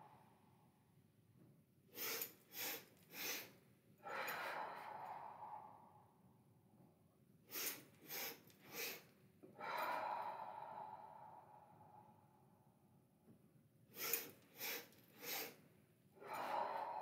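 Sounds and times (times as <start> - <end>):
woman exhaling: 2.0 - 6.1, 9.6 - 12.3, 16.2 - 17.0.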